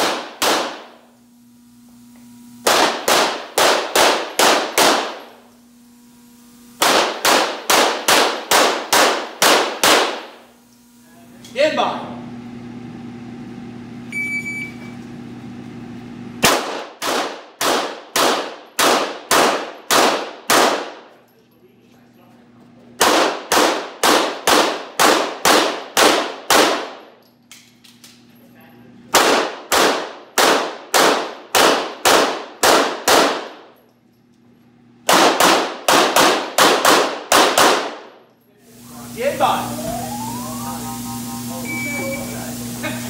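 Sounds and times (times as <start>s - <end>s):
rapid pistol shots: 0.0s - 1.0s, 2.6s - 5.4s, 6.8s - 10.4s, 16.4s - 21.1s, 23.0s - 27.1s, 29.1s - 33.7s, 35.0s - 38.2s
shot timer beep: 14.1s - 15.0s, 39.7s - 42.5s.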